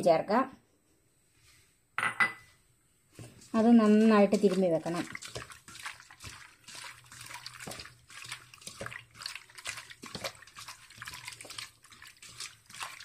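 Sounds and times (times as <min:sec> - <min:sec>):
wet squelching of hand in paste: 0:03.3 - 0:13.0.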